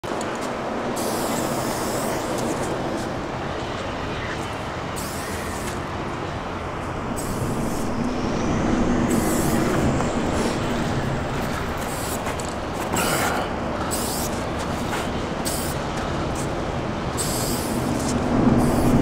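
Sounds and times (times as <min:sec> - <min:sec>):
traffic noise overhead: 0:00.0 - 0:19.0
spray paint can hissing: 0:01.0 - 0:02.5, 0:11.8 - 0:12.5, 0:13.9 - 0:14.8, 0:15.4 - 0:16.5, 0:17.2 - 0:19.0.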